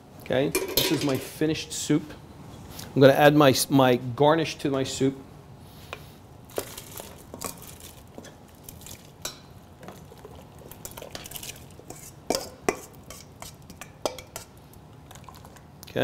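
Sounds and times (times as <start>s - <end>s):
metal bowl scraping pot rim: 10.3s - 14.6s.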